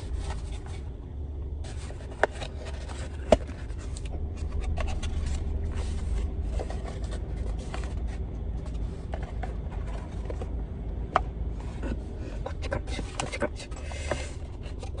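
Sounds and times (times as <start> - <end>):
cardboard rustling and scraping: 0.0 - 1.0, 1.6 - 10.6
low rumble inside car: 0.0 - 15.0.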